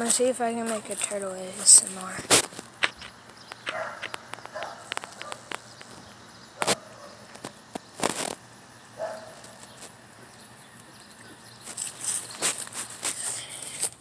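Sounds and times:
rustling rub: 0:11.6 - 0:14.0
shell scraping: 0:11.6 - 0:14.0.

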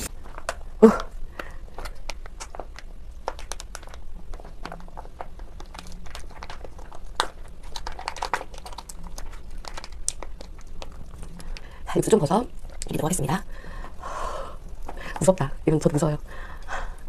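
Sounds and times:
plastic pouch crinkling: 0:01.8 - 0:11.7.

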